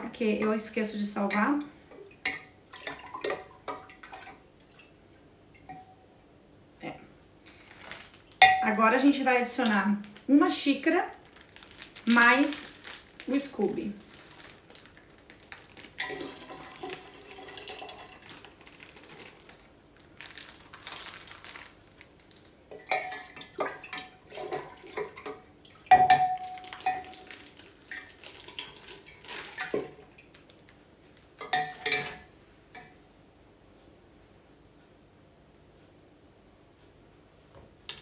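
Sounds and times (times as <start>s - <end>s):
liquid pouring into glass jar: 15.9s - 19.0s, 25.9s - 29.9s.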